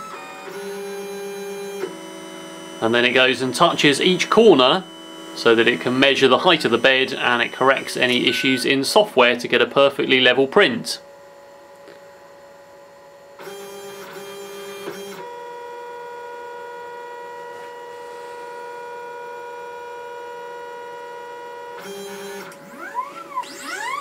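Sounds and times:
stepper motors whining: 0.0 - 11.0, 21.8 - 24.0.

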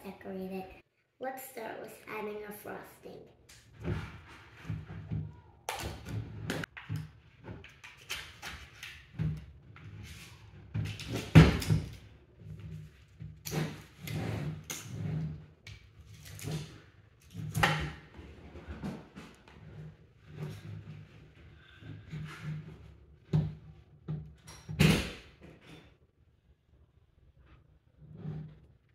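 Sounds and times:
spatula scraping plastic tub: 3.5 - 24.0.

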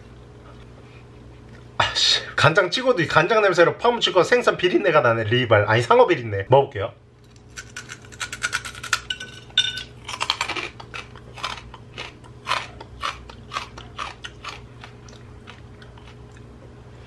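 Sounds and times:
crunchy chewing: 7.2 - 9.1, 9.9 - 16.7.

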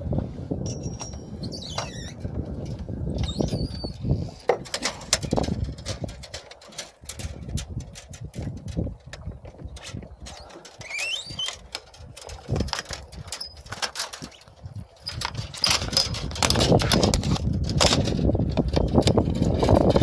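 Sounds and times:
wind buffeting microphone: 0.0 - 20.0
brief squeak: 1.4 - 2.2, 3.2 - 4.0, 10.3 - 11.6
knocks and clatter on boat mast: 4.4 - 20.0.

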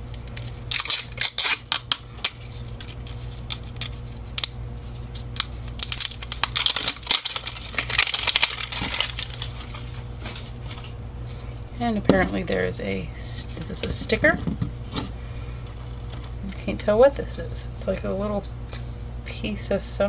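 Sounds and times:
steady low hum: 0.0 - 20.0
plastic wrapper crinkling: 0.1 - 11.6.

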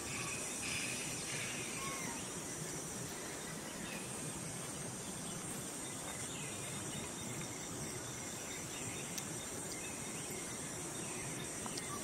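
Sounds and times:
high-pitched insect drone: 0.0 - 4.6
faint chirps: 0.0 - 12.0.

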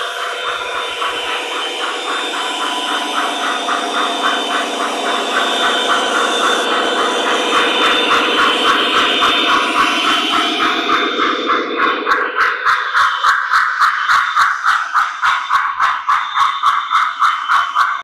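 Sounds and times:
model train diesel engine sound: 0.0 - 18.0.

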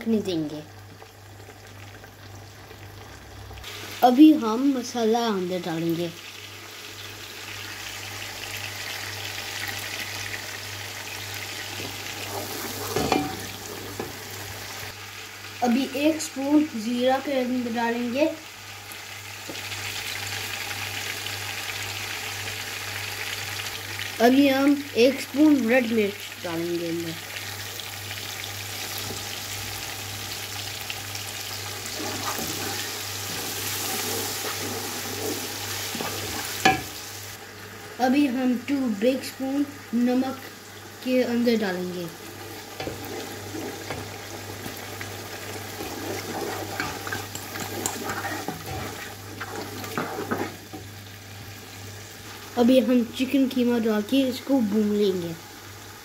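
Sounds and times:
food sizzling in hot oil: 0.0 - 56.0
wooden spoon scraping pot: 31.8 - 36.8, 42.4 - 44.8, 45.5 - 50.8
wooden spatula stirring: 31.9 - 36.8, 42.4 - 44.8, 45.4 - 50.7.

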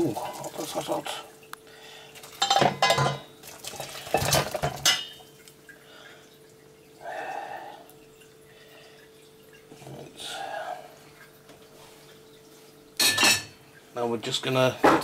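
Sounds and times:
saucepan clattering against metal sink: 2.4 - 5.2.

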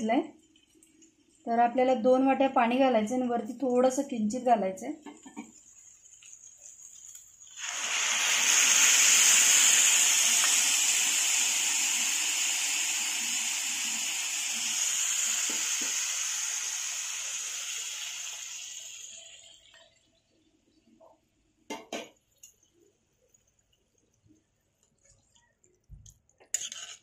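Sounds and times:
water sizzling in hot pan: 5.0 - 20.0.

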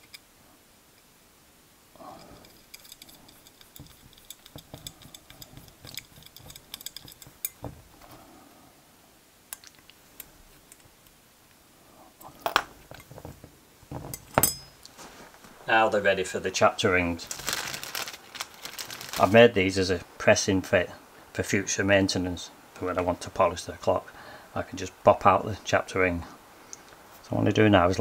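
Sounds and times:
small metallic clicks and taps: 2.4 - 7.8
objects knocking on bench: 4.5 - 7.9.

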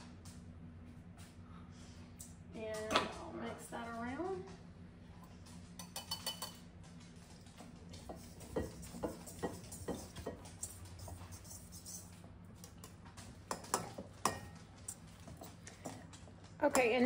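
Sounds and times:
taps and clinks against bowl: 5.8 - 6.6, 8.0 - 11.2, 13.5 - 16.0, 16.6 - 17.0
utensil stirring flour in bowl: 7.9 - 17.0.

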